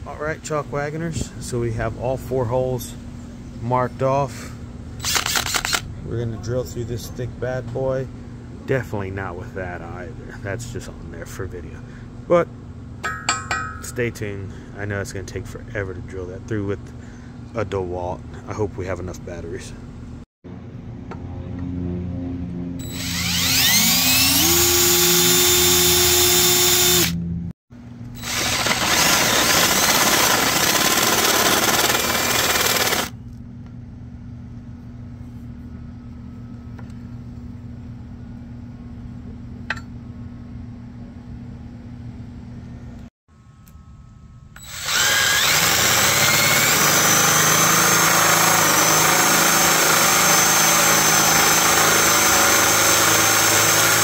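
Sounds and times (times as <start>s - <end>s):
low steady hum: 0.0s - 28.8s, 32.1s - 45.5s
drill boring through steel: 5.0s - 5.8s, 22.8s - 27.2s, 28.2s - 33.1s, 44.6s - 54.0s.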